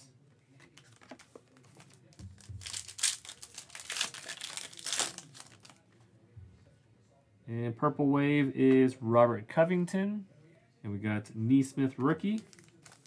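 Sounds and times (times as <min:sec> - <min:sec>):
foil wrapper tearing and crinkling: 0:01.8 - 0:05.8, 0:12.4 - 0:13.0.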